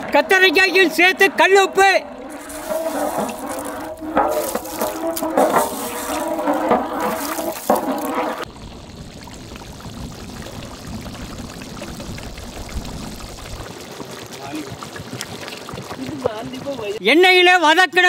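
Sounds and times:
water sloshing in a pot: 0:02.2 - 0:17.0.

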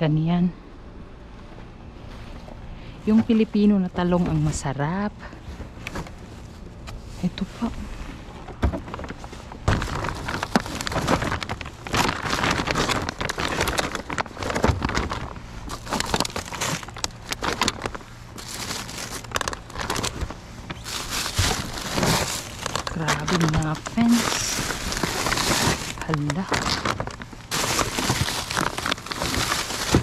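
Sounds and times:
plastic packaging rustling: 0:07.3 - 0:30.0.

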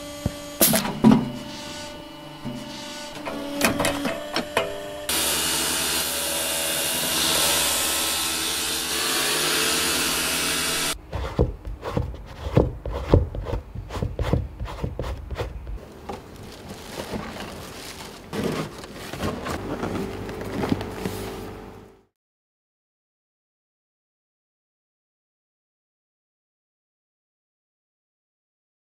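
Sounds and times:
grinding wheel rasping on rubber: 0:01.2 - 0:05.2, 0:07.4 - 0:21.1.

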